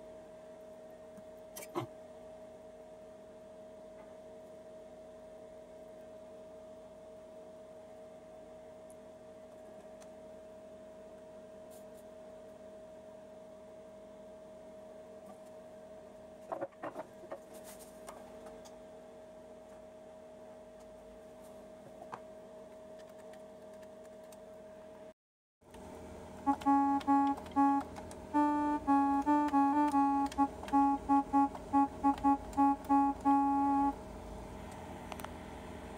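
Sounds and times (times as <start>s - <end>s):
faint steady hum: 0.0s - 35.9s
digital horn playing notes: 26.4s - 34.1s.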